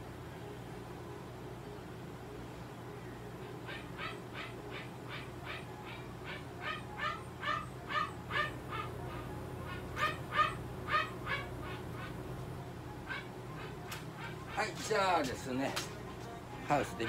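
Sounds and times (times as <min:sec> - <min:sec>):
animal high-pitched cries: 0:03.4 - 0:12.4, 0:13.0 - 0:15.1.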